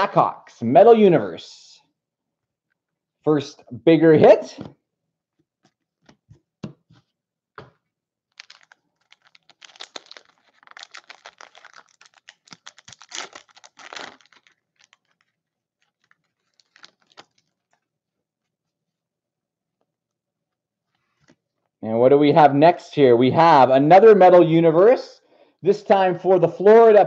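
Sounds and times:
foil wrapper crackling: 8.3 - 17.8.

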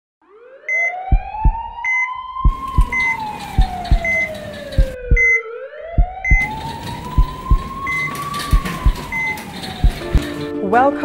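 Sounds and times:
siren wailing: 0.2 - 10.5
paired low thumps: 1.1 - 1.8, 2.4 - 5.4, 6.0 - 10.4.

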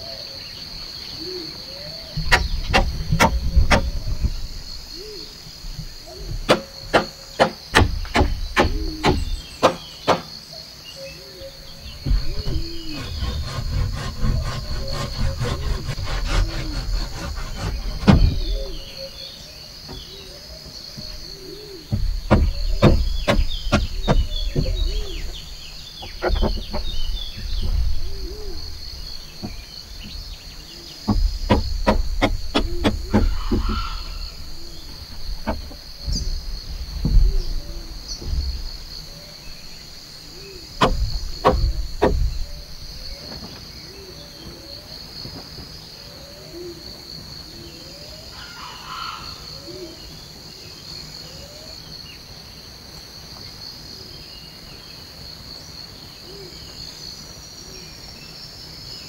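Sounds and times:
forest insects droning: 0.0 - 59.0
sharp knocks and thumps: 2.2 - 10.3, 11.6 - 19.1, 19.8 - 40.0, 40.6 - 43.6.

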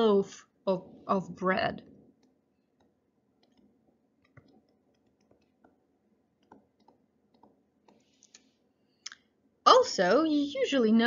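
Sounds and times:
pen tapping on paper: 2.8 - 5.8, 6.4 - 8.0.

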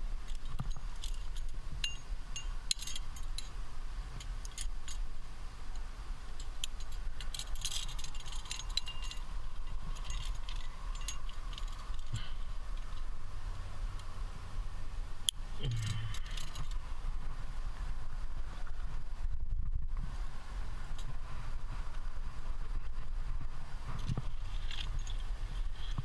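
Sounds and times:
low steady rumble: 0.0 - 26.0
climbing gear clinking: 0.2 - 5.1, 6.4 - 13.1, 15.6 - 16.8, 23.9 - 26.0.

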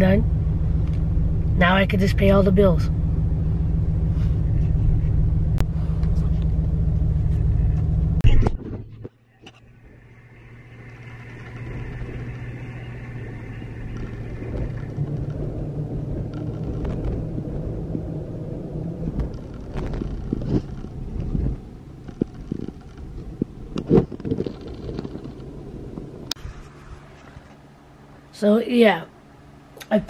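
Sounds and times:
car engine hum: 0.0 - 30.0
tyre rumble: 11.0 - 27.4.

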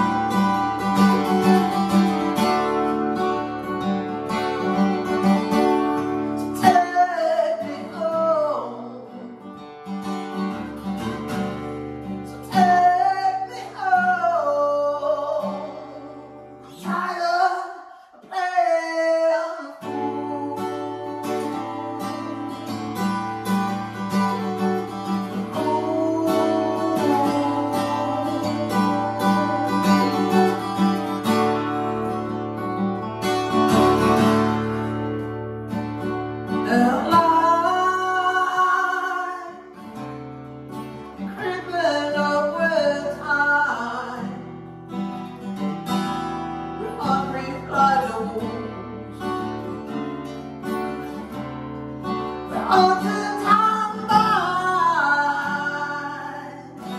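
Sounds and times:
acoustic guitar strumming: 0.0 - 56.9
person singing: 4.5 - 9.6, 12.2 - 22.9, 23.8 - 31.7, 36.5 - 39.9, 41.0 - 44.5, 46.8 - 49.7, 52.3 - 56.9.

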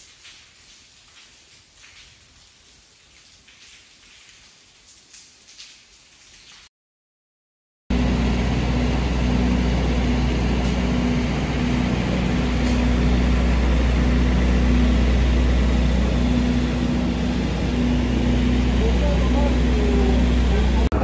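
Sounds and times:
vehicle engine rumbling: 7.9 - 21.0.

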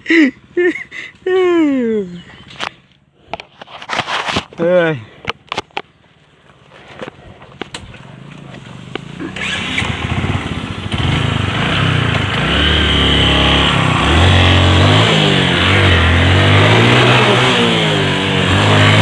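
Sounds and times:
motorcycle engine revving: 6.8 - 19.0.

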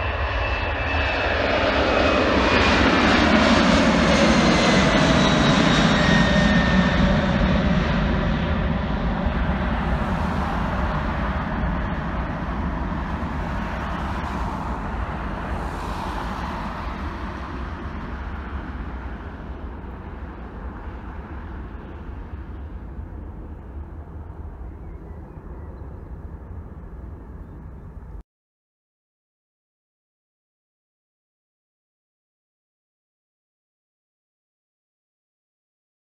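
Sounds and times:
jet engines rumbling: 0.0 - 28.2.

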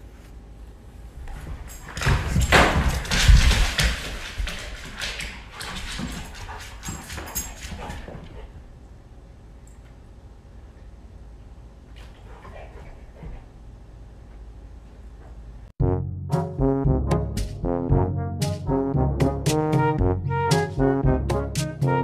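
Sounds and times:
dog claws clicking on wooden floor: 1.3 - 8.4.

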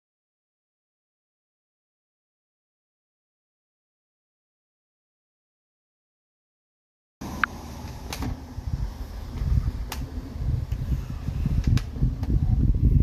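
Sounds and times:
cable reel low rumbling: 7.2 - 13.0.

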